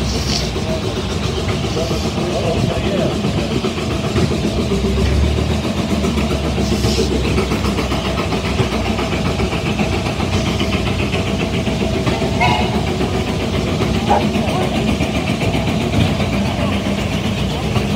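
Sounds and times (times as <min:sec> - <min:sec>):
steam engines rumbling: 0:00.0 - 0:17.9
steam hiss: 0:00.0 - 0:17.9.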